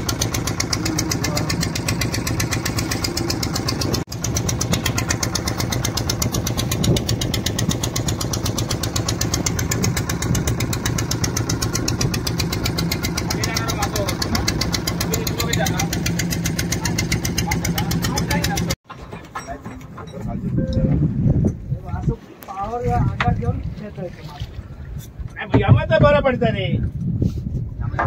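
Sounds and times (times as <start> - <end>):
boat engine knocking: 0.0 - 19.0, 25.4 - 26.4.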